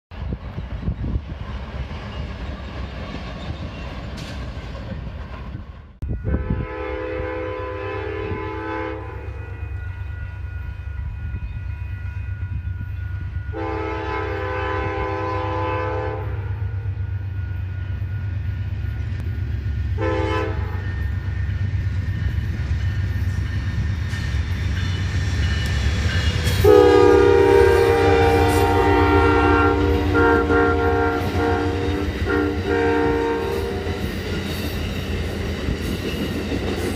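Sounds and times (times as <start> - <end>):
diesel locomotive rumble: 0.1 - 36.9
train wheel noise: 0.1 - 36.9
locomotive horn: 6.0 - 11.1, 13.4 - 18.0, 19.9 - 21.2, 26.4 - 34.1.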